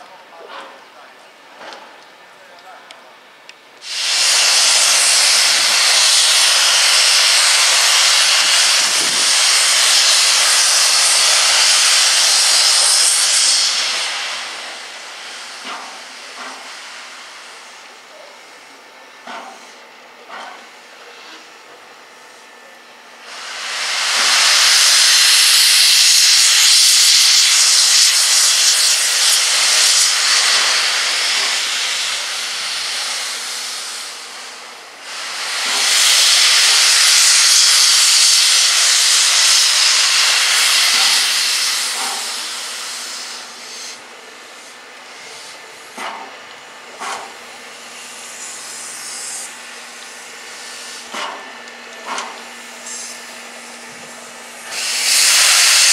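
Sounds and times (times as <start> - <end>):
steam locomotive hissing steam: 3.8 - 55.9.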